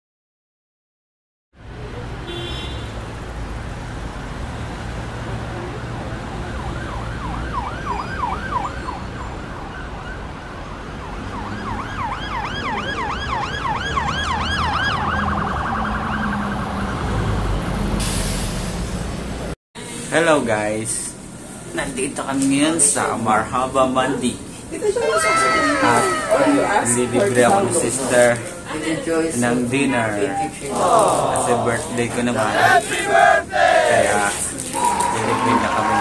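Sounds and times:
street traffic rumble: 1.6 - 36.0
emergency siren yelping: 6.2 - 17.0, 34.7 - 36.0.

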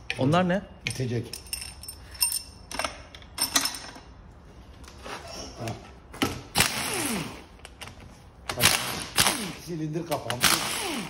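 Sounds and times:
metal clinks: 0.8 - 4.0
pneumatic impact wrench bursts: 6.5 - 7.6, 8.5 - 9.7, 10.3 - 11.0.

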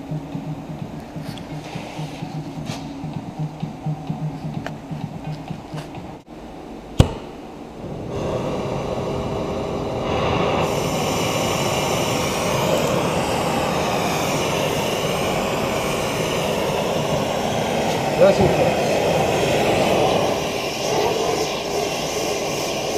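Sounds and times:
torch burning with rushing hiss: 7.0 - 22.9.

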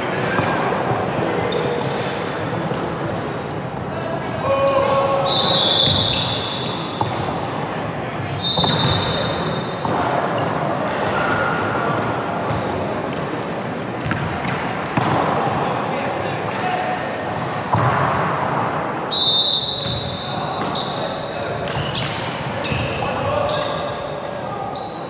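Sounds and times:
voices of players and spectators: 0.0 - 25.0
sneakers squeaking on court: 1.5 - 7.3, 8.4 - 11.0, 12.0 - 14.3, 19.8 - 25.0
basketball bouncing on court: 14.0 - 15.3.

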